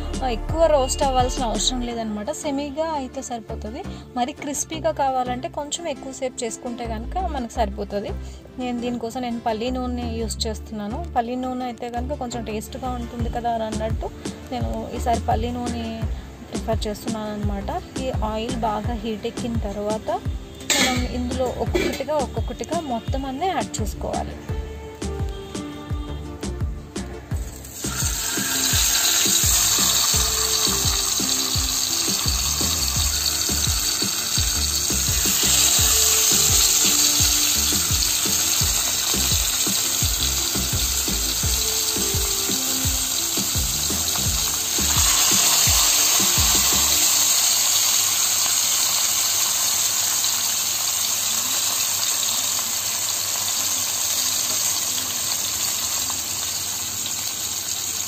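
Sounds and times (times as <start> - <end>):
background music with beat: 0.0 - 2.0, 13.2 - 47.7
fish sizzling in frying pan: 19.9 - 23.0, 27.4 - 58.0.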